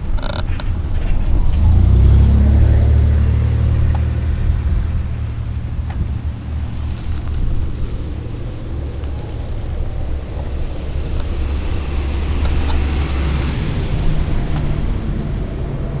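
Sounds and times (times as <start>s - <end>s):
wheels rumbling on pavement: 0.0s - 16.0s
passing car hiss: 1.0s - 16.0s.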